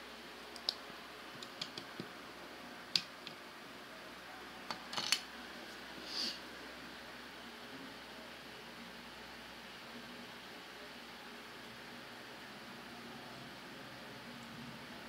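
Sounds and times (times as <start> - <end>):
background hiss: 0.0 - 15.0
plastic bricks clicking: 4.8 - 5.2.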